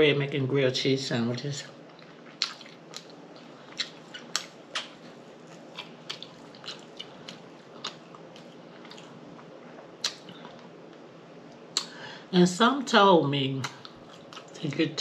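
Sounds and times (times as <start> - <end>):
person chewing: 1.8 - 11.0, 13.6 - 14.8
wet lip smacks: 2.3 - 5.0, 5.8 - 9.1, 10.0 - 10.7.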